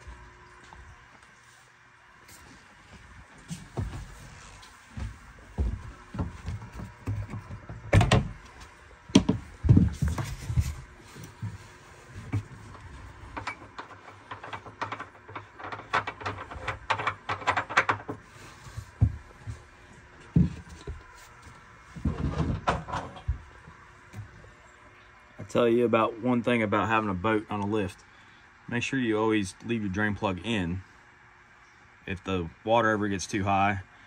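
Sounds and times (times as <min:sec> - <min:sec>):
things being handled clattering: 0:03.4 - 0:24.3.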